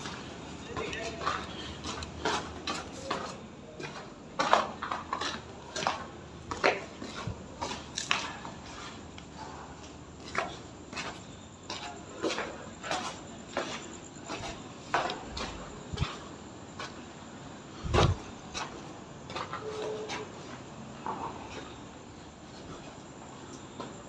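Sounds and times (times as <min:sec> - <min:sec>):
footsteps on gritty concrete: 0:00.0 - 0:24.0.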